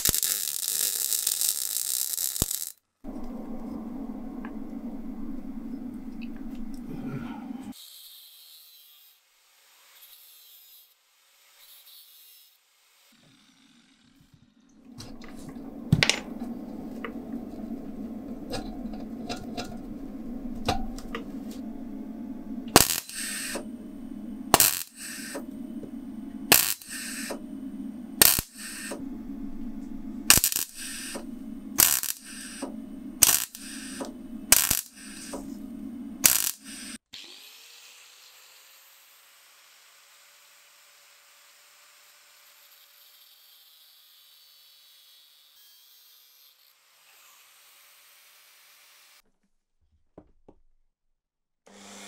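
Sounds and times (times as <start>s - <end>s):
arc welder bursts: 0.0s - 3.3s, 15.0s - 37.4s
steady low hum: 3.0s - 7.8s, 14.7s - 37.0s.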